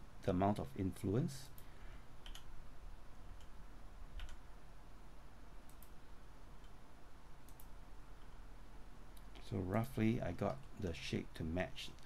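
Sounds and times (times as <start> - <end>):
low steady hum: 0.0 - 12.0
keyboard keys and mouse clicking: 1.6 - 2.5, 4.2 - 4.4, 5.6 - 6.0, 7.4 - 8.4.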